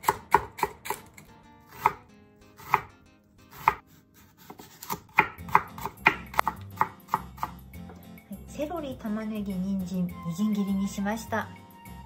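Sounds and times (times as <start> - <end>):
knife chopping on wooden board: 0.0 - 2.0, 2.6 - 2.9, 3.5 - 8.0.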